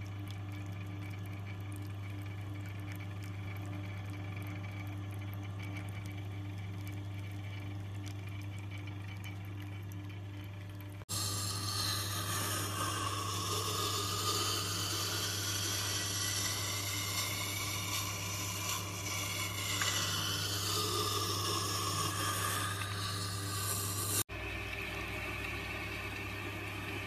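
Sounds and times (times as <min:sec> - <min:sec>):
motor hum: 0:00.0 - 0:27.0
blade scraping on wet grindstone: 0:11.1 - 0:24.3.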